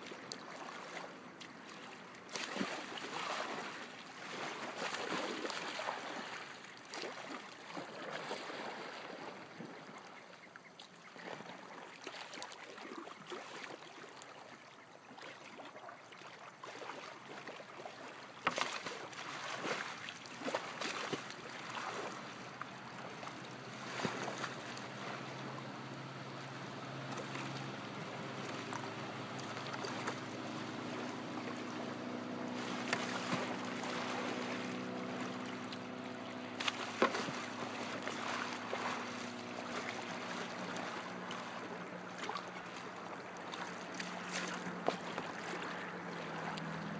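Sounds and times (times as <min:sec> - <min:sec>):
paddle slapping water: 0:00.0 - 0:46.9
water splashing around kayak: 0:00.0 - 0:46.9
steady low hum: 0:20.2 - 0:46.9.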